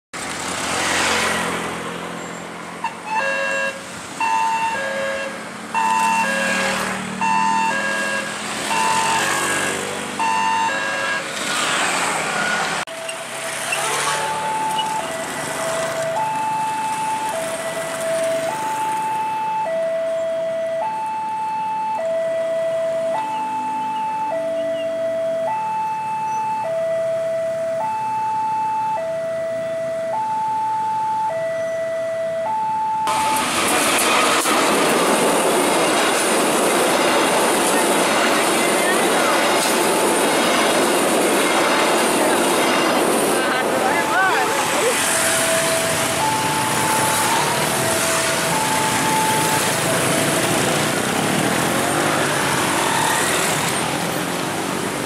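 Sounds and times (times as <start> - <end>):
diesel locomotive and train passing: 0.2 - 55.0
traffic engine drone: 0.2 - 55.0
level-crossing two-tone alarm: 3.1 - 11.3, 12.9 - 33.6, 43.9 - 51.2.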